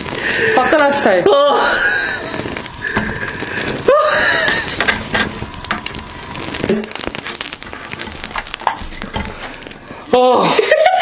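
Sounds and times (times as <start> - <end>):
fat crackling and popping in flame: 0.0 - 11.0
person exclaiming: 0.8 - 1.8, 3.8 - 4.4, 10.1 - 10.7.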